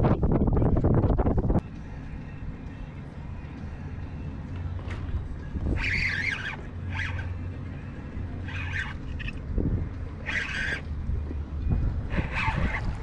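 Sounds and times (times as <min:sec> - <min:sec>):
wind rumble on microphone: 0:00.0 - 0:03.5, 0:04.6 - 0:13.0
fishing reel drag buzzing: 0:04.6 - 0:11.4, 0:12.0 - 0:13.0.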